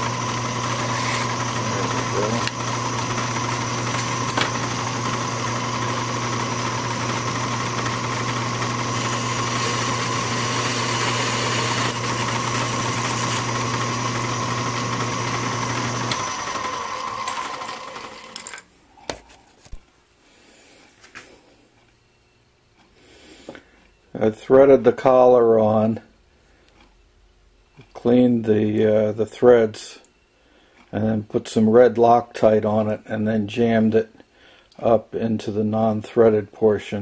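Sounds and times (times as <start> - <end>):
lathe running: 0.0 - 18.6
lathe winding down: 0.0 - 18.6.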